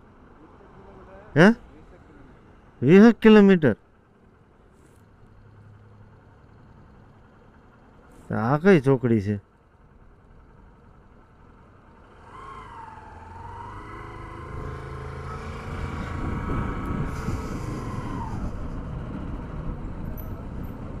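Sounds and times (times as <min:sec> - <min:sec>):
road and wind noise: 0:00.0 - 0:21.0
motorcycle engine accelerating: 0:11.5 - 0:21.0.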